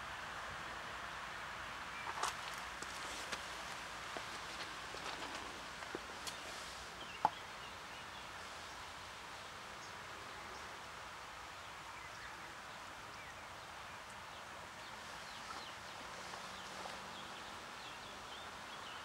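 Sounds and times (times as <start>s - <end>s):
faint background hiss: 0.0s - 19.0s.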